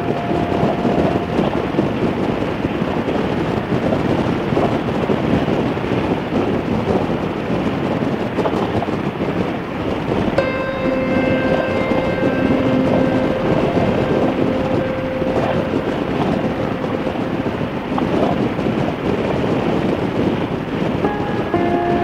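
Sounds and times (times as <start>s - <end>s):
steady held tone: 0.0s - 3.8s, 10.0s - 22.0s
wind buffeting microphone: 0.0s - 22.0s.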